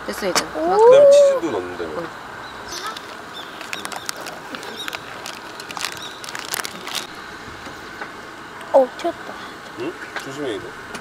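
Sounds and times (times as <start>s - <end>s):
food crackling in hot pan: 3.0s - 7.1s.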